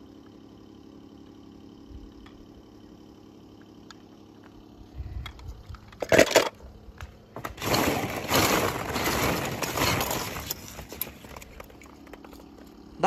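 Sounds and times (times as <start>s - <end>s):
clattering crash of hard objects: 6.0s - 6.6s, 7.4s - 12.4s.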